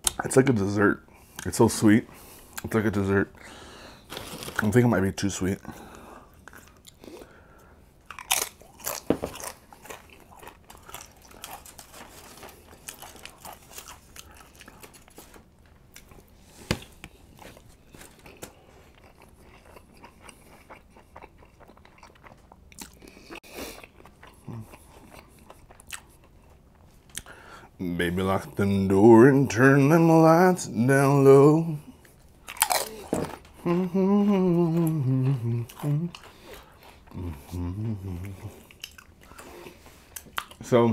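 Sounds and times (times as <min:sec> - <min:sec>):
soft chewing: 0:05.7 - 0:27.6, 0:31.8 - 0:40.8
crunching tortilla chips: 0:08.1 - 0:16.2, 0:32.4 - 0:33.7.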